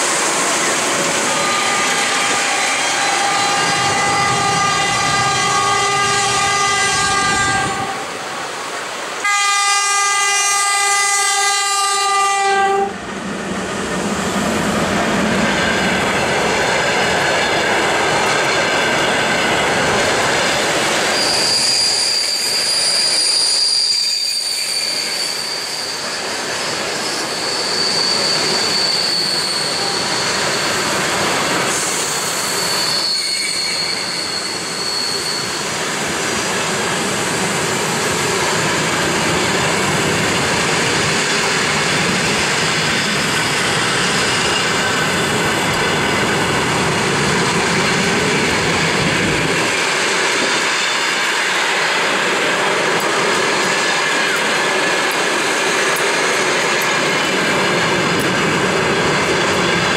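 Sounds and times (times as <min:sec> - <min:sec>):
train coaches rolling past: 0:00.0 - 0:59.9
high wheel squeal: 0:00.3 - 0:07.4, 0:21.0 - 0:36.0, 0:42.1 - 0:46.5
train horn blasts: 0:01.3 - 0:08.2, 0:09.2 - 0:13.0.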